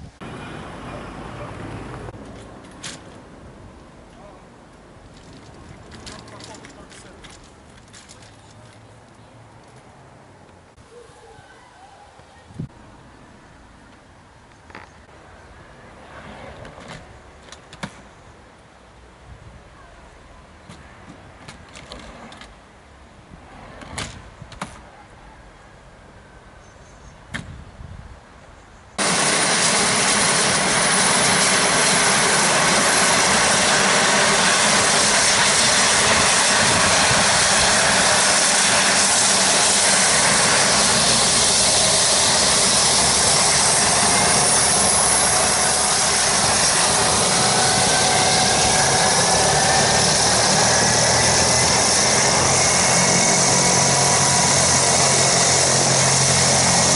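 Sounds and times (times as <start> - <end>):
helicopter turbine engines spooling up: 29.0 - 56.9.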